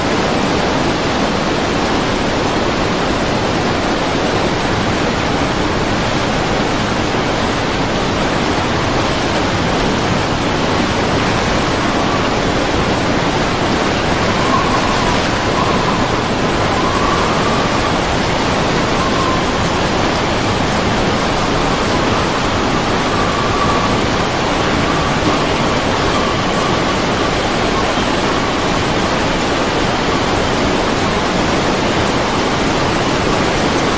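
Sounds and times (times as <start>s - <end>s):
floodwater rushing: 0.0s - 33.9s.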